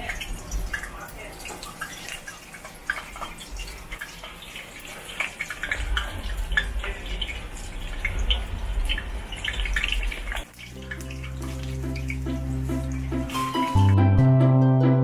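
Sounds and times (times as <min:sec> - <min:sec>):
food deep-frying in hot oil: 0:00.0 - 0:14.1
low rumble: 0:05.7 - 0:10.4
music: 0:10.6 - 0:15.0.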